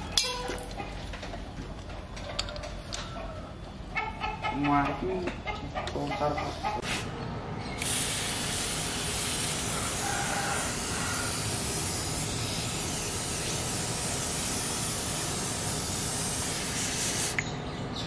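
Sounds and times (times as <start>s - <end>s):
aerosol spray can hissing: 7.8s - 17.4s.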